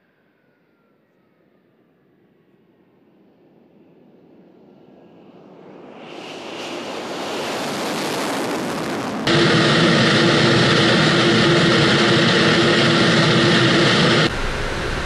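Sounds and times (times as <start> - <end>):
jet engine noise: 5.9 - 15.0
aircraft engine drone in cabin: 9.3 - 15.0.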